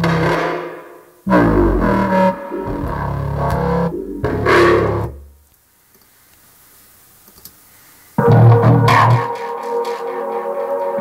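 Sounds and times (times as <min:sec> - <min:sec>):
distorted growling synth bass: 0:01.3 - 0:05.4
faint hiss: 0:05.2 - 0:08.2.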